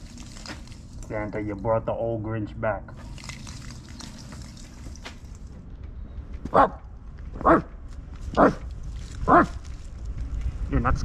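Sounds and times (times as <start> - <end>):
dog barking: 6.5 - 6.8, 7.4 - 7.7, 8.4 - 8.6, 9.2 - 9.6.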